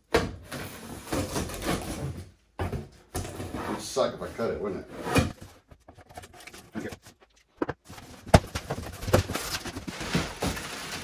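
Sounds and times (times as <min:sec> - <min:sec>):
cardboard and packaging rustling: 0:05.2 - 0:11.0.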